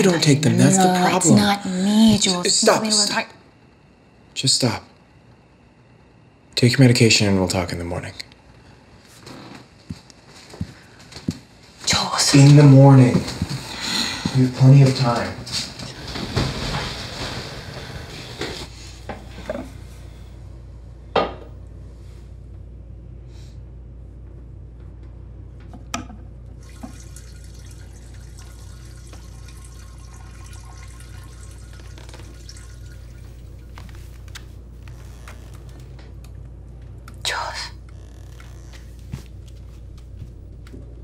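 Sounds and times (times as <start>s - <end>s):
low steady hum: 0.0s - 41.0s
water running: 11.9s - 18.7s, 26.5s - 36.0s.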